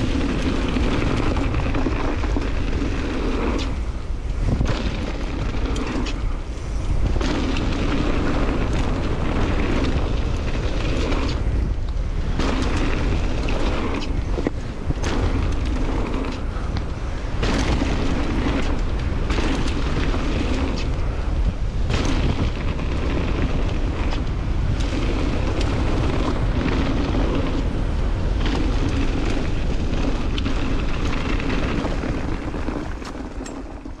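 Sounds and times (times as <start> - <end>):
bike knocks and rattles: 0.0 - 34.0
bike tyres rolling on dirt: 0.0 - 34.0
wind rumbling on microphone: 0.0 - 34.0.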